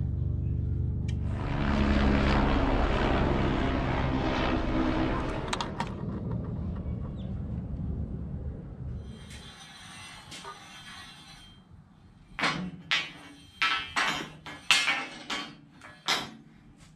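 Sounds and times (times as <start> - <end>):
engine rumble passing by: 0.0 - 9.3.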